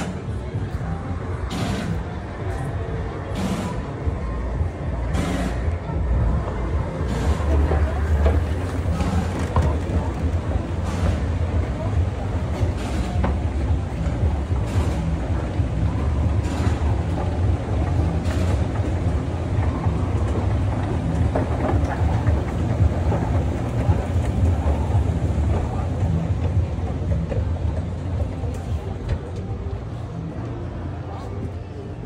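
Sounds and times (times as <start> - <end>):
escalator mechanical rumble: 0.0 - 32.0
rattle of moving steps: 7.2 - 29.5.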